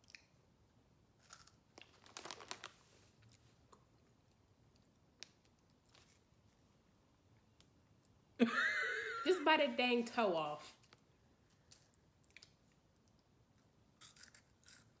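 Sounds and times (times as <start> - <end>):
crunching snacks being chewed: 1.2 - 4.1, 11.6 - 15.0.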